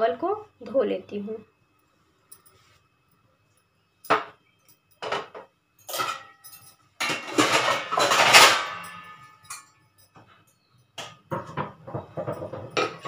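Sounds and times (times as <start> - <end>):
metal clatter: 5.0 - 10.2, 11.3 - 13.0
loud metal clang: 7.0 - 9.6
steel vessels knocking: 11.0 - 13.0.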